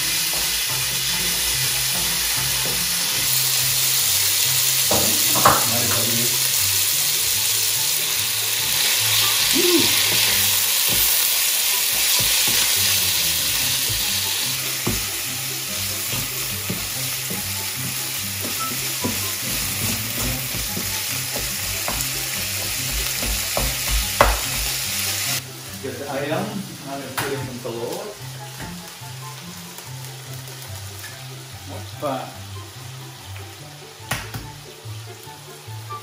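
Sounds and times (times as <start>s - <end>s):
chicken sizzling in frying pan: 0.0s - 36.0s
wooden spatula scraping a pan: 16.0s - 23.5s.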